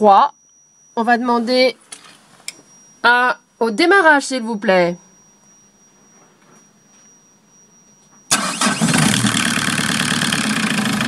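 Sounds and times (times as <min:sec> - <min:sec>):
diesel engine starting and idling: 0:08.3 - 0:11.0.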